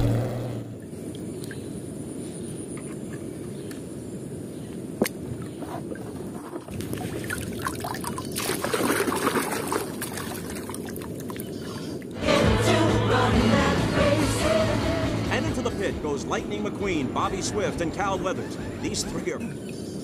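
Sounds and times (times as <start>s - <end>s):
film soundtrack music: 12.2s - 19.6s.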